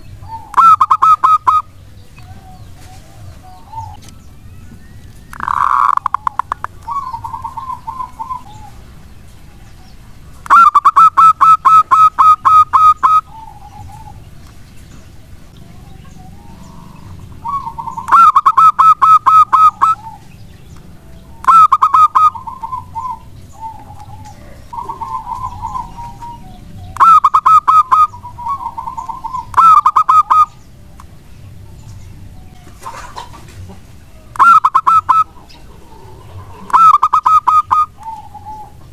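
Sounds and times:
dove rapid clipped notes: 0.2 - 1.8, 5.0 - 8.8, 10.4 - 14.6, 16.0 - 31.1, 34.3 - 35.3, 36.6 - 38.6.

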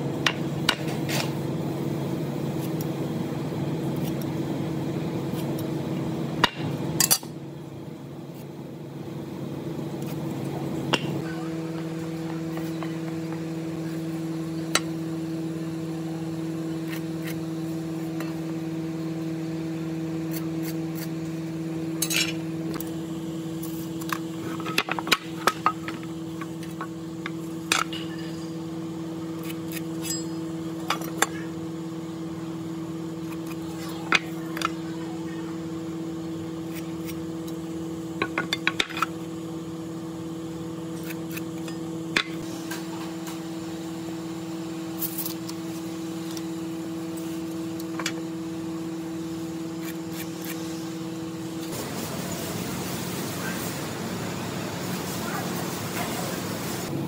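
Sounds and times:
machine hum: 0.0 - 57.0.

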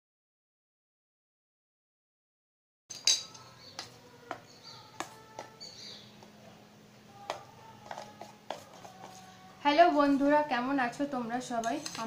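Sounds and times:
metal spoon clinking on bowl: 2.9 - 3.9.

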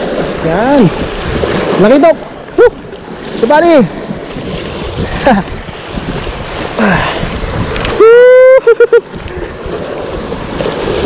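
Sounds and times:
wind on microphone: 0.0 - 1.8, 3.9 - 11.0
sea waves washing on shore: 0.0 - 11.0
man crying out: 8.0 - 9.0.

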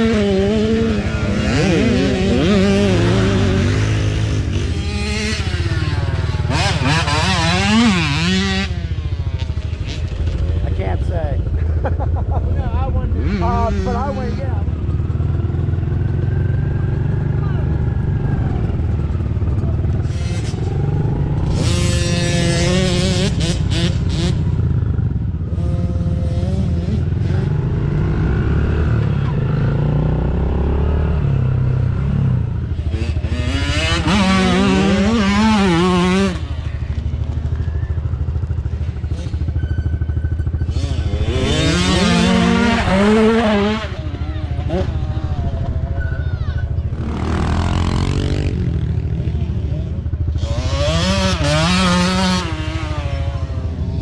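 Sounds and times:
dirt bike engine revving: 0.0 - 54.0
dirt bike engines running: 0.0 - 54.0.

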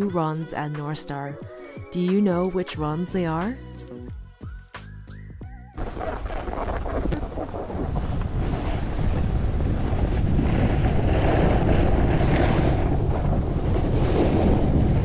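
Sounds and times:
snowboard scraping on snow: 5.8 - 15.0
wind buffeting microphone: 5.8 - 15.0.

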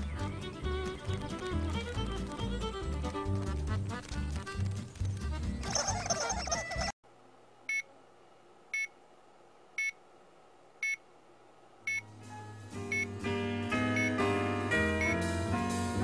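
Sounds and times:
cartoon music: 5.5 - 6.9.

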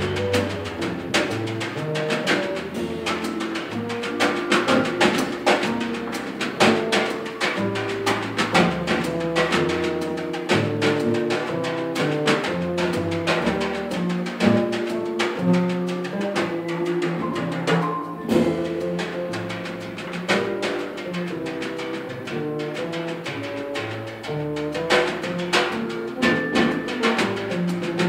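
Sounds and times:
double basses plucked: 0.0 - 28.0
drum kit: 0.0 - 28.0.

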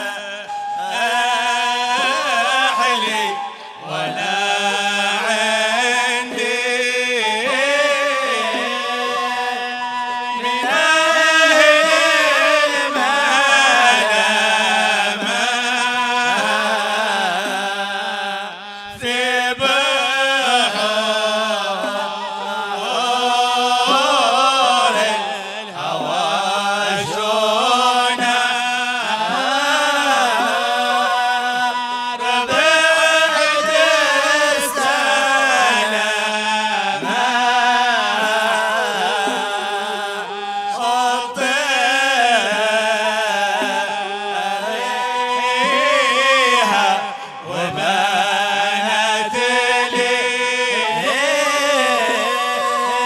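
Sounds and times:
man chanting: 0.0 - 53.0.

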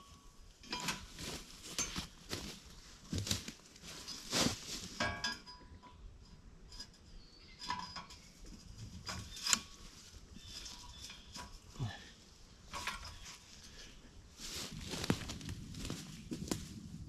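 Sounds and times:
rustling in dry leaves: 1.0 - 5.1, 13.1 - 17.0
metal sections clanking: 3.8 - 6.1.

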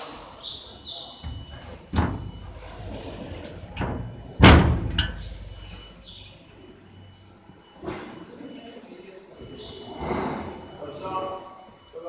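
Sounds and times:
metal cabinet door slamming: 1.2 - 5.6.

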